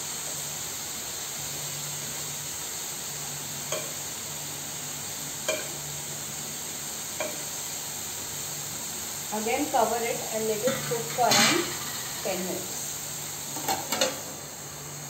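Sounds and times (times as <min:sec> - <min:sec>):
chicken sizzling in a frying pan: 0:00.0 - 0:15.0
spatula clicking against pan: 0:03.7 - 0:04.0, 0:05.5 - 0:05.8, 0:07.2 - 0:07.4.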